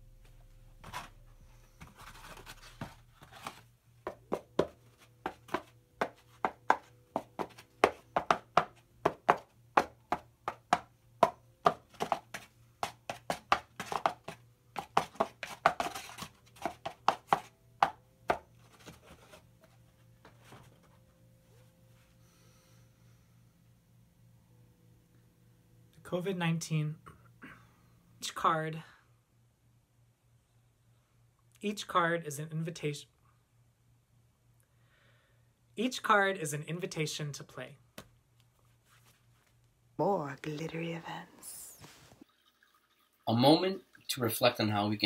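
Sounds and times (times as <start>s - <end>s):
cardboard rustling: 0.8s - 8.0s, 11.8s - 17.5s, 18.3s - 21.1s
egg carton being tapped: 4.1s - 18.4s.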